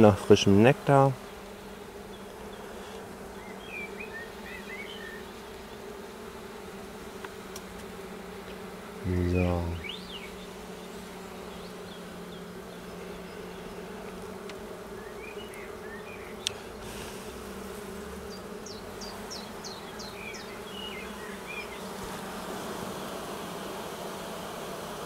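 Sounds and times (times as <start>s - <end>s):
bees buzzing: 0.0s - 25.0s.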